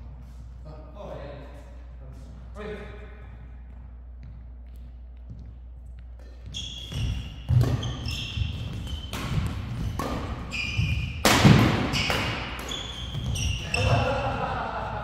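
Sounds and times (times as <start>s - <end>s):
shoes squeaking on floor: 3.5s - 14.1s
racket hitting shuttlecock: 6.2s - 14.5s.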